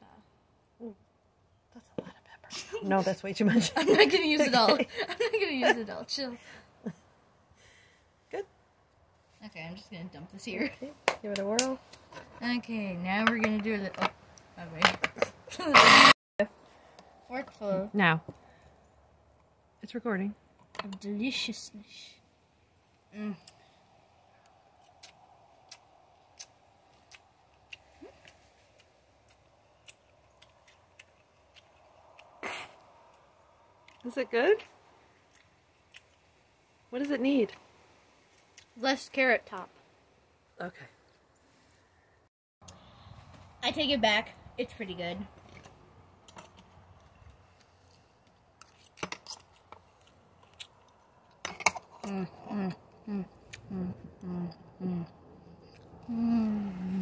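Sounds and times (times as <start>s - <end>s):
crunchy chewing: 23.4s - 34.0s, 34.6s - 36.3s, 46.2s - 52.1s
closed-mouth mmm hums: 52.0s - 57.0s.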